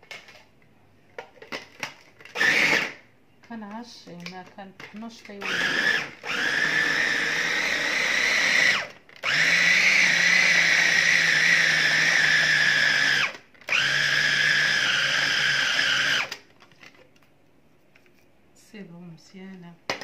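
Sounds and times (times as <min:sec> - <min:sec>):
food chopper motor whine: 0:02.3 - 0:03.0, 0:05.4 - 0:16.4.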